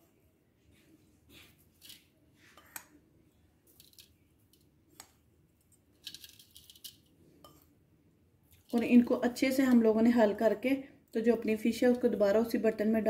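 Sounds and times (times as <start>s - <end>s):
spice powder rustling: 1.4s - 2.8s, 3.6s - 7.2s.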